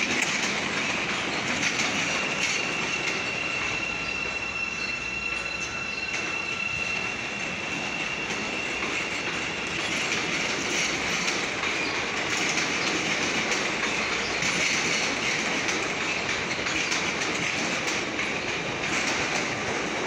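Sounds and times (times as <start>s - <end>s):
train wheels clattering over rail joints: 0.0s - 4.1s, 5.9s - 20.0s
high wheel screech: 1.2s - 11.9s.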